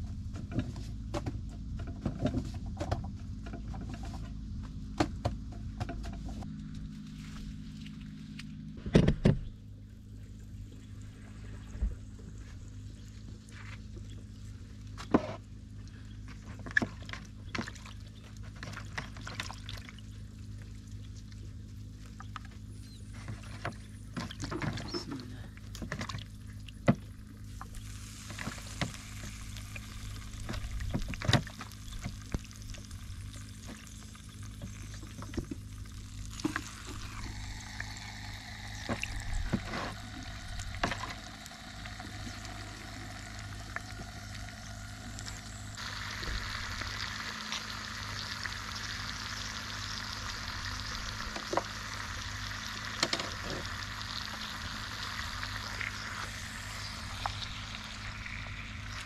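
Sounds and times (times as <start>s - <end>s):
food sizzling in hot oil: 27.8s - 59.0s.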